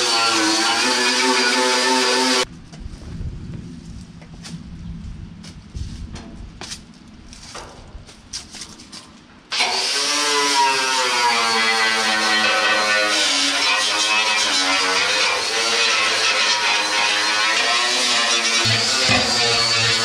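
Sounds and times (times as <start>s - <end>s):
wire wheel grinder on steel: 0.0s - 2.5s, 11.7s - 20.0s.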